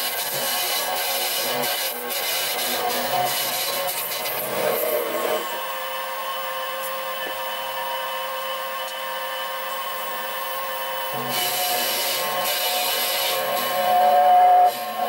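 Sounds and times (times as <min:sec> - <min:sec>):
lathe motor whine: 0:00.0 - 0:15.0.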